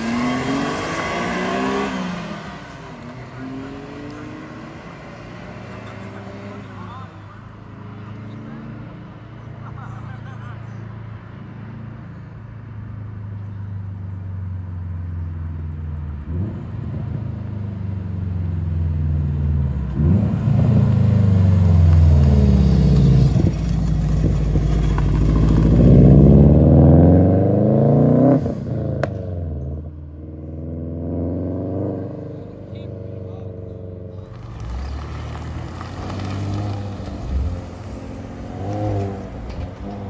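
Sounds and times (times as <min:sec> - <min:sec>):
car accelerating past: 0:00.0 - 0:06.9, 0:16.2 - 0:40.0.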